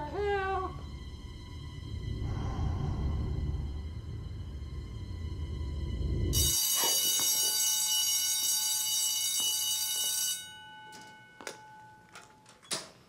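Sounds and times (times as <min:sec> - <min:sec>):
electric bell ringing: 0:06.4 - 0:12.7.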